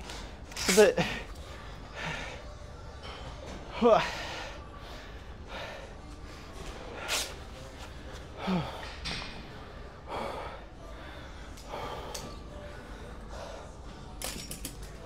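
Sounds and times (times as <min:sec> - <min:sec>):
man breathing hard: 0:10.0 - 0:14.0.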